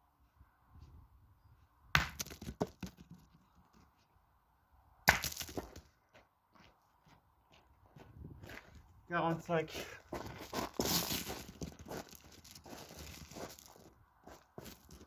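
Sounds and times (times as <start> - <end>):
boules bouncing and rolling: 2.0 - 3.8.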